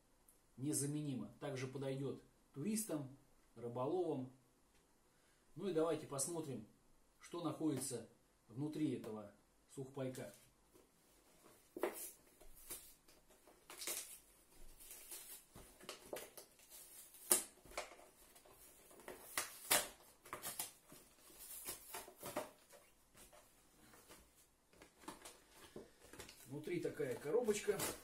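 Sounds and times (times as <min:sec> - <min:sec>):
cardboard box ripping: 0:14.8 - 0:22.6.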